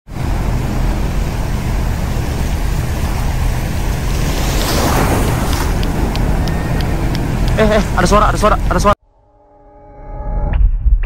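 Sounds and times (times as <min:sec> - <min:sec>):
waves breaking on beach: 0:00.1 - 0:08.8
wind on microphone: 0:00.6 - 0:08.0.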